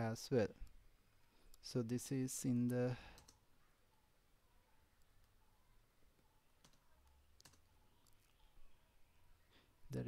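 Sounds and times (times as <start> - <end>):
computer mouse and keyboard clicks: 2.6 - 3.4, 6.6 - 8.3.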